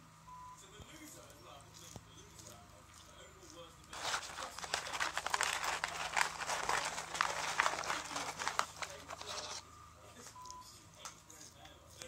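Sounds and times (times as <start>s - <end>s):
puppy scratching on carpet: 3.9s - 9.6s.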